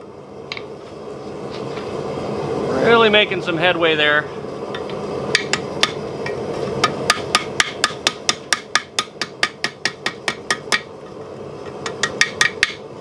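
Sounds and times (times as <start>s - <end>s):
hammer striking steel on anvil: 6.8s - 10.9s, 11.8s - 12.8s.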